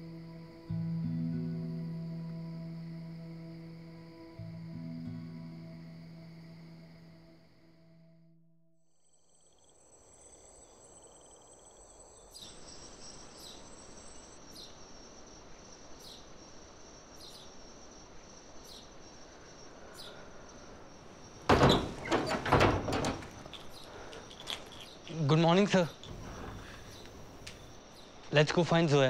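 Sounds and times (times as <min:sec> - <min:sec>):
night insects trilling: 0:00.0 - 0:08.1, 0:08.9 - 0:29.0
faint hiss: 0:09.4 - 0:29.0
knocks and bumps: 0:21.2 - 0:25.2.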